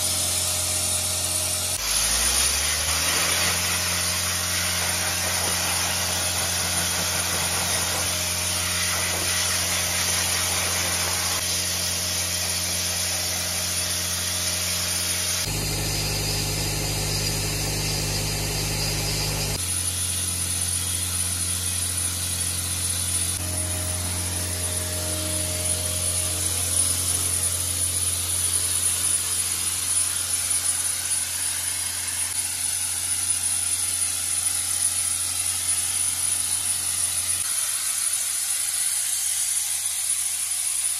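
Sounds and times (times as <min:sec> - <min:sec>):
blasting hiss: 0:00.0 - 0:40.9.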